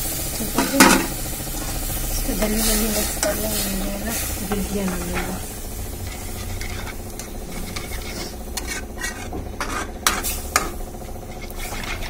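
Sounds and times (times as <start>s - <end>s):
pan sizzling: 0.0s - 12.0s
metal spatula scraping metal pan: 2.4s - 12.0s.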